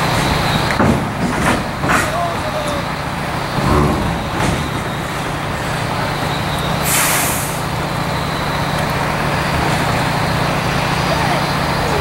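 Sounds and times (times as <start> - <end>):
hiss of escaping air: 6.8 - 7.6.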